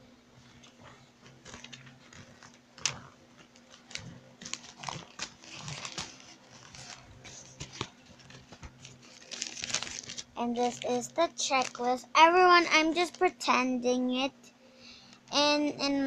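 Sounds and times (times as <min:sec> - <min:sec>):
faint steady hum: 0:00.0 - 0:16.0
paper rustling and crinkling: 0:00.4 - 0:12.0.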